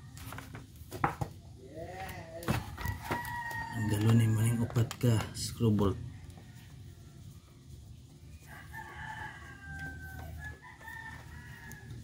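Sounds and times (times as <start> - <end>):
rooster crowing: 2.5 - 4.6, 8.4 - 12.0.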